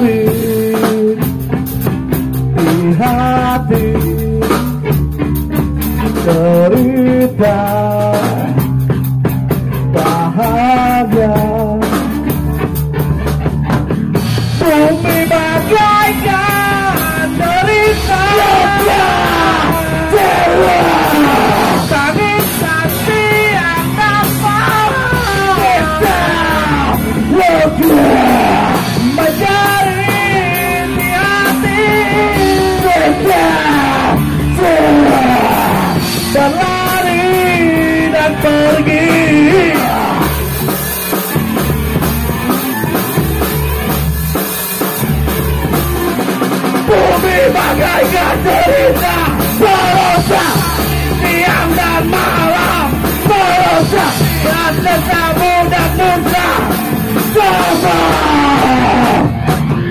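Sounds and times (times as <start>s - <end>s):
person singing and yelling: 0.0s - 1.3s, 2.6s - 4.9s, 6.0s - 8.6s, 9.9s - 12.0s, 14.6s - 40.5s, 46.8s - 59.5s
rock band playing: 0.0s - 59.9s.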